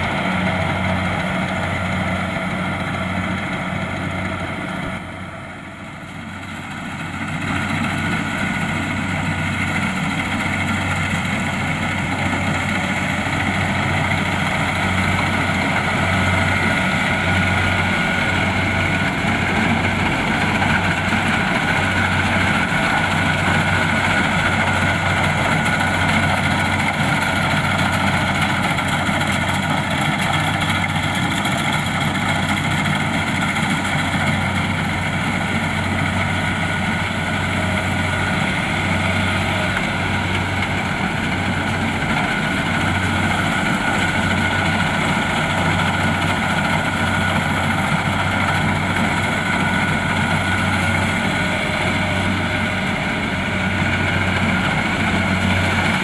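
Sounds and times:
steady high whine: 0.0 - 30.9
combine harvester engine hum: 0.0 - 56.0.

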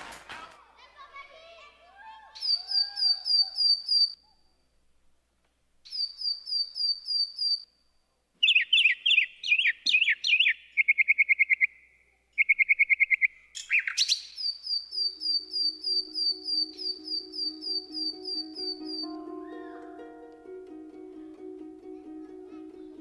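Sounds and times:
recorded birdsong chirps and trills: 2.4 - 4.4, 5.9 - 7.7, 8.4 - 19.8.

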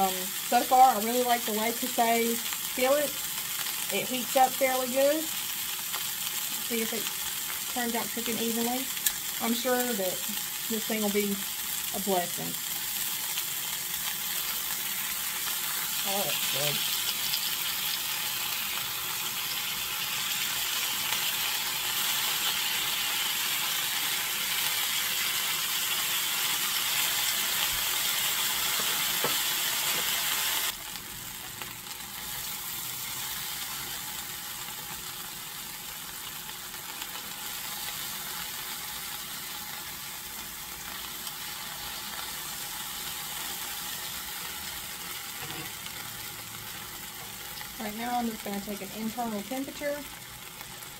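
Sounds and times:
steaks sizzling in hot oil: 0.0 - 50.9.

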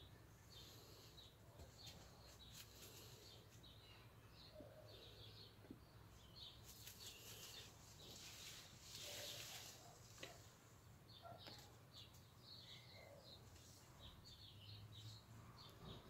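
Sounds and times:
faint bird chirps: 0.0 - 16.0.

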